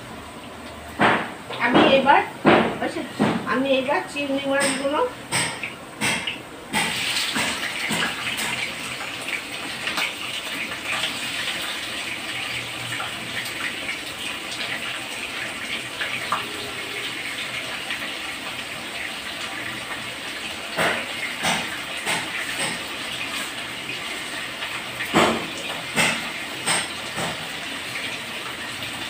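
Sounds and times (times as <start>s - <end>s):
prawns sizzling in hot oil: 5.2s - 29.0s.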